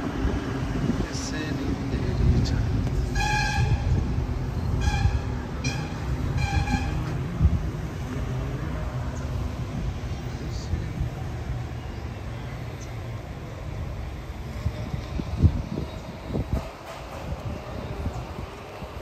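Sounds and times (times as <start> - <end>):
low engine rumble: 0.0 - 19.0
horn toots: 3.1 - 4.0, 4.7 - 7.2.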